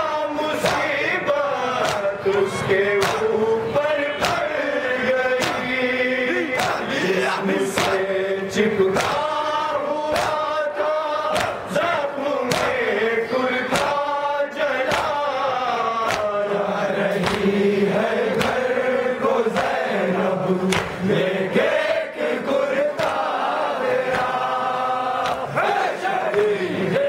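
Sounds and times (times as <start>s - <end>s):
men chanting: 0.0s - 27.0s
hands slapping chests: 0.6s - 1.0s, 1.8s - 2.1s, 3.0s - 3.3s, 4.2s - 4.5s, 5.4s - 5.7s, 6.6s - 6.9s, 7.7s - 8.0s, 8.9s - 9.3s, 10.1s - 10.5s, 11.3s - 11.7s, 12.4s - 12.8s, 13.7s - 14.0s, 14.8s - 15.2s, 16.0s - 16.4s, 17.2s - 17.5s, 18.2s - 18.7s, 19.5s - 19.9s, 20.7s - 21.1s, 23.0s - 23.2s, 24.0s - 24.4s, 25.2s - 25.6s, 26.2s - 26.6s.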